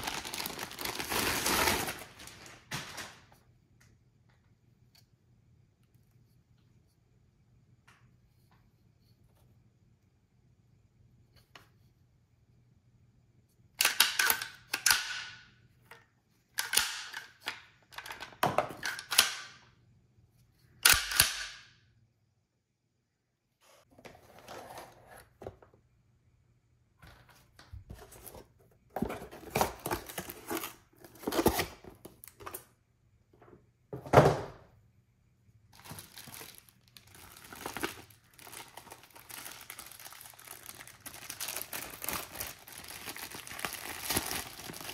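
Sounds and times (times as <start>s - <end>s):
plastic bag crinkling: 0.0s - 3.4s, 35.7s - 44.9s.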